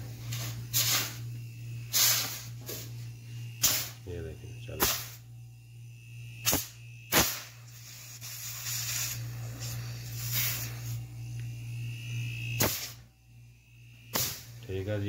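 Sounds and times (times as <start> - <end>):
compressor humming: 0.0 - 15.0
hiss: 0.2 - 4.0, 4.7 - 5.2, 6.4 - 11.1, 12.6 - 13.1, 14.1 - 14.6.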